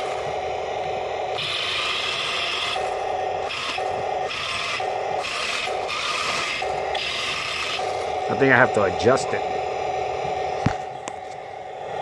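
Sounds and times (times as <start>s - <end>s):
toy tank motors grinding: 1.3s - 9.3s.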